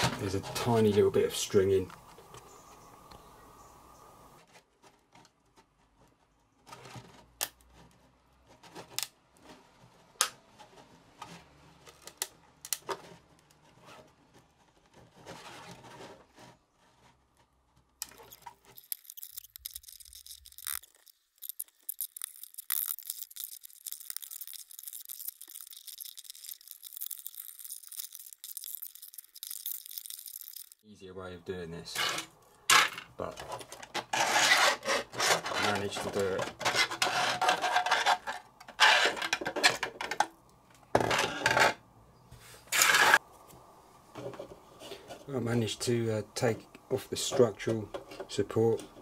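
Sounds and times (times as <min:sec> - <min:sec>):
plastic crackling and snapping: 0:04.5 - 0:10.6, 0:11.2 - 0:30.8.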